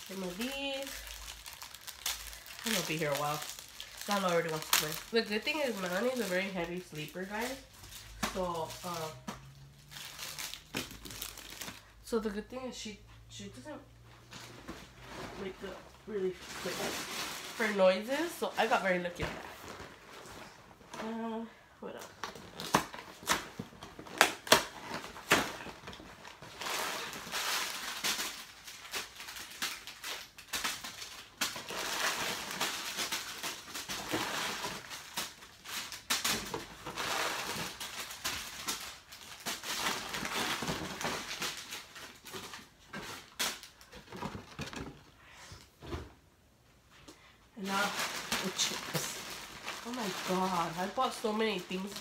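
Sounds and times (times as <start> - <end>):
wrapped candies rattling and spilling: 0.0 - 12.1, 22.2 - 45.2, 47.6 - 52.0
plastic candy wrappers crinkling: 0.0 - 12.2, 14.4 - 20.0, 21.9 - 45.2, 47.6 - 52.0.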